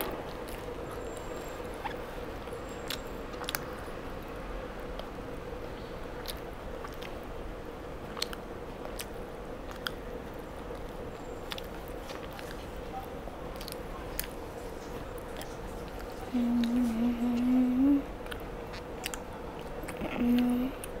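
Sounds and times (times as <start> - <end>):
person chewing: 0.0 - 4.0, 6.1 - 7.3, 8.0 - 12.8, 13.5 - 21.0
faint steady hum: 0.0 - 21.0
small crackly clicks: 8.2 - 10.0, 18.2 - 21.0.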